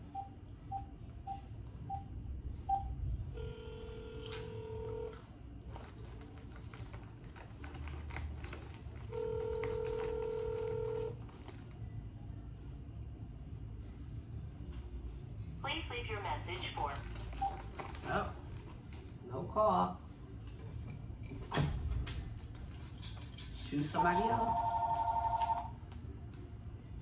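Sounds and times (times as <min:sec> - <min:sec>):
phone ringback tone: 0:03.4 - 0:05.2, 0:09.1 - 0:11.1, 0:24.5 - 0:25.7.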